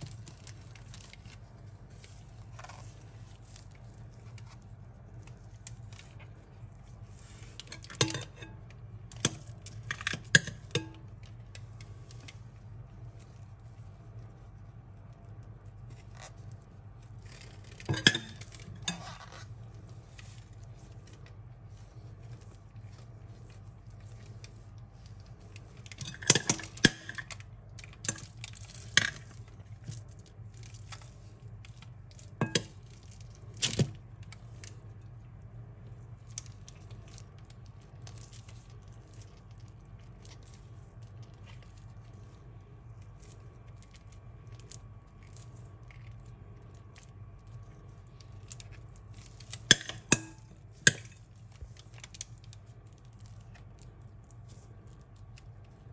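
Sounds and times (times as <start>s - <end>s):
low steady hum: 0.0s - 55.9s.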